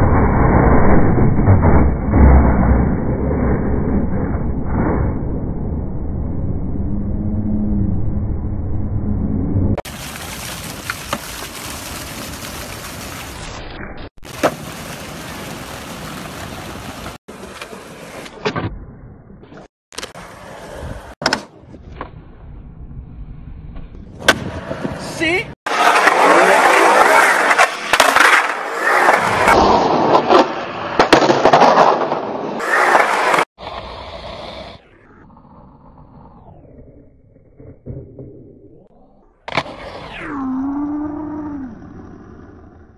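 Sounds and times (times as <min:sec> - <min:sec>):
skateboard wheels rolling on concrete: 0:09.8 - 0:13.6, 0:14.2 - 0:18.8, 0:19.5 - 0:38.6, 0:39.4 - 0:40.2
splashing fountain water: 0:09.8 - 0:17.2.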